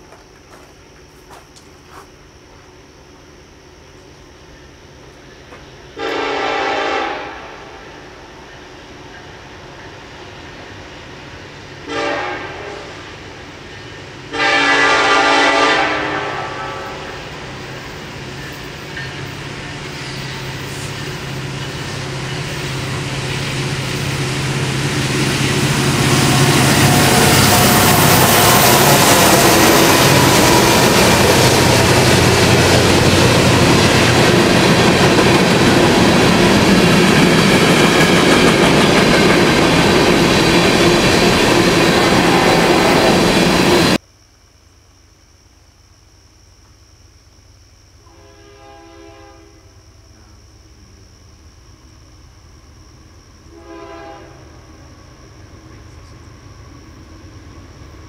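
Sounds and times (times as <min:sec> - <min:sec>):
train horn blasts: 0:06.0 - 0:07.8, 0:11.8 - 0:13.0, 0:14.3 - 0:17.2, 0:48.0 - 0:49.7, 0:53.5 - 0:54.6
locomotive engines rumbling: 0:07.6 - 0:44.0
wheels clattering on rails: 0:17.6 - 0:44.0.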